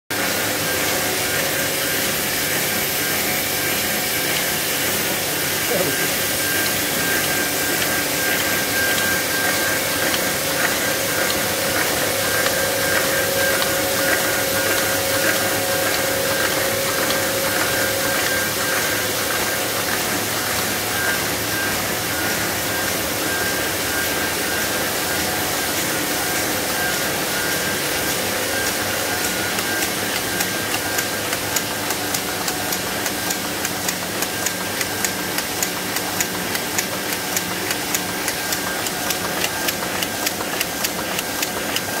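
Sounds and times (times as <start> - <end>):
printing press humming and hissing: 0.1 - 42.0
regular mechanical clicking: 28.6 - 42.0.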